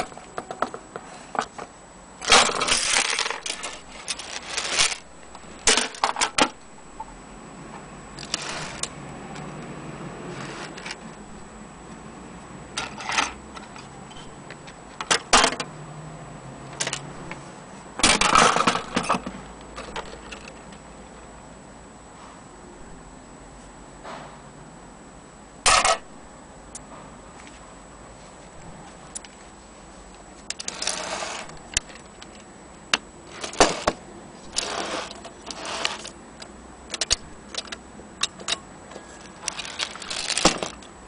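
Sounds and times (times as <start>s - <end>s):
clock parts clinking and jangling: 36.9s - 40.9s.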